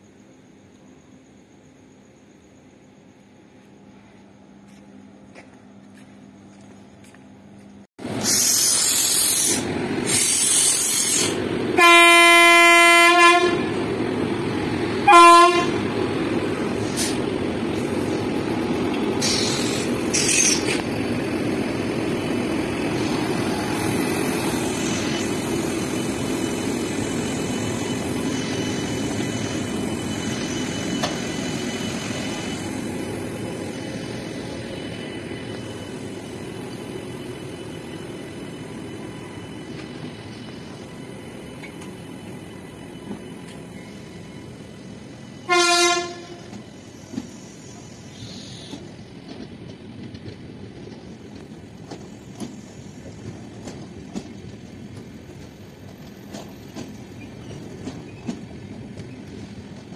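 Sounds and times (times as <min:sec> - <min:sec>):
air hiss bursts: 0:08.2 - 0:11.4, 0:19.2 - 0:20.8
locomotive horn blast: 0:11.8 - 0:13.8, 0:15.0 - 0:15.9, 0:45.4 - 0:46.6.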